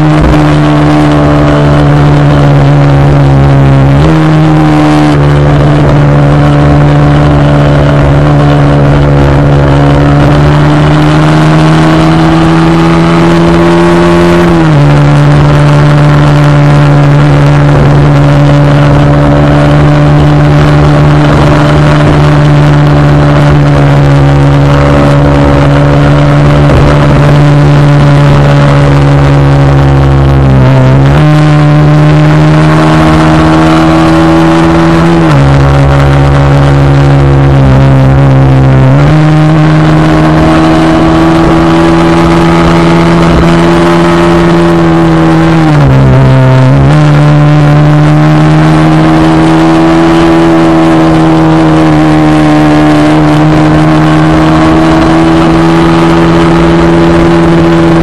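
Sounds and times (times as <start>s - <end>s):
low wind rumble: 0.0s - 13.7s, 14.4s - 58.0s
motorcycle engine droning: 0.0s - 58.0s.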